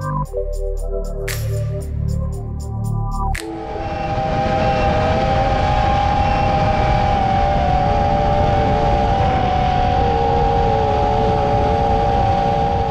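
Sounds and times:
wind buffeting microphone: 3.5s - 12.9s.

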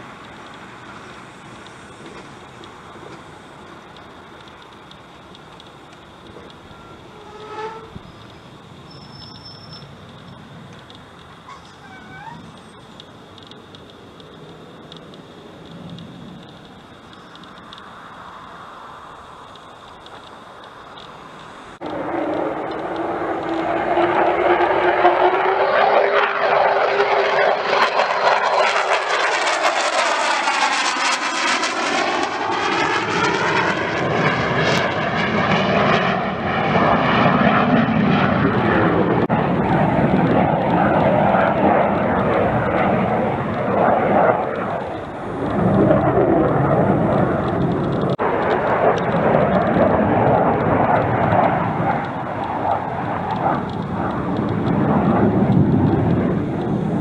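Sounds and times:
jet flying past: 0.0s - 57.0s.

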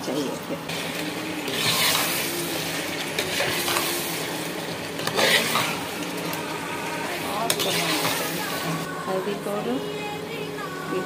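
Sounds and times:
chicken sizzling in oil: 0.7s - 8.9s
spoon scraping metal pot: 5.0s - 6.0s, 7.4s - 8.7s.

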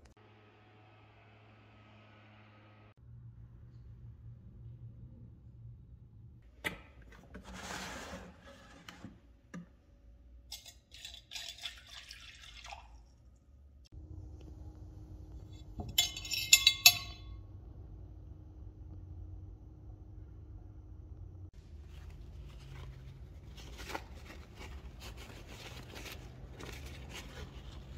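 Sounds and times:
liquid pouring into glass dish: 10.6s - 13.3s
metal parts clinking on glass: 15.7s - 17.3s.

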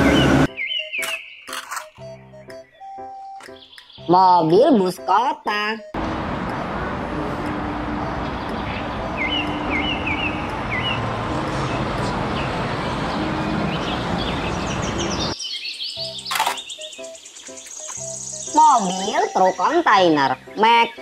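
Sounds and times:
bus driving past: 0.0s - 0.5s, 6.0s - 15.4s
bird chirping: 0.0s - 5.2s, 8.0s - 21.0s
street traffic noise: 0.0s - 15.4s, 16.0s - 21.0s.

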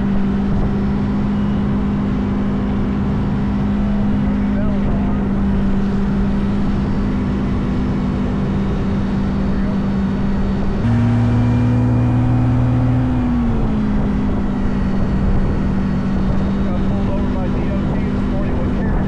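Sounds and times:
engine drone: 0.0s - 19.0s
low tone: 0.0s - 19.0s.

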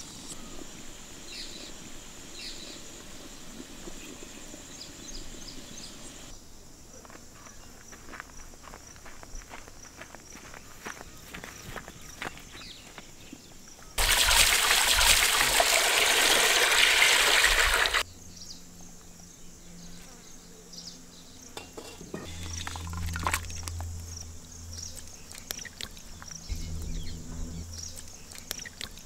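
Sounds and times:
water pouring out of a pot: 14.0s - 18.0s, 22.2s - 23.8s.

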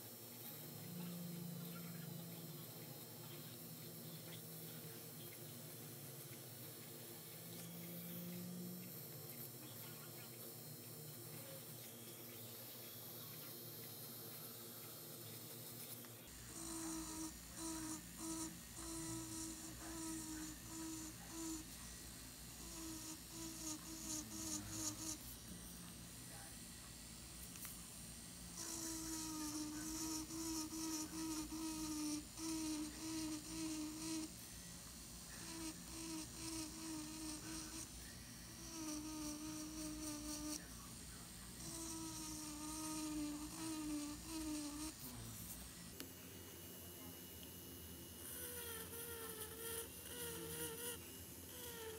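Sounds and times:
electric nail drill whine: 0.0s - 51.9s
scratchy hiss: 27.4s - 46.3s, 48.1s - 51.9s.

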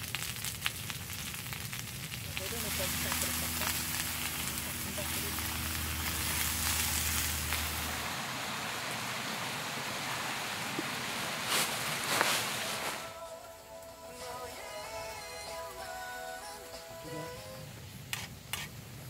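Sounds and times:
vegetables sizzling in a hot pan: 0.0s - 13.0s
low hum: 2.2s - 11.4s.

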